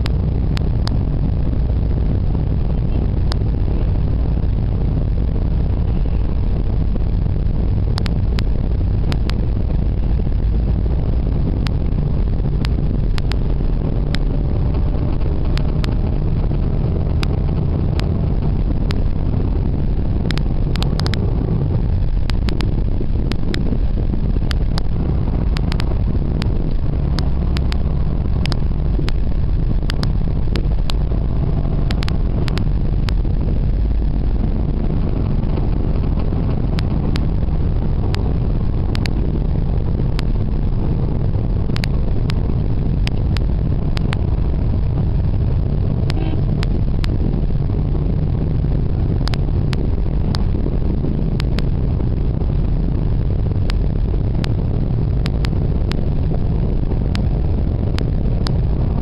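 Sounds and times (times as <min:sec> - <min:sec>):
car engine and road noise: 0:00.0 - 0:59.0
sharp clicks: 0:20.2 - 0:21.3, 0:22.0 - 0:33.2, 0:41.6 - 0:44.3.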